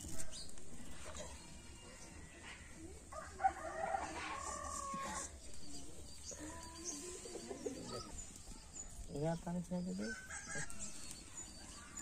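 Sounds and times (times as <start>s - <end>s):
rooster crowing: 3.1s - 5.3s, 10.0s - 11.1s.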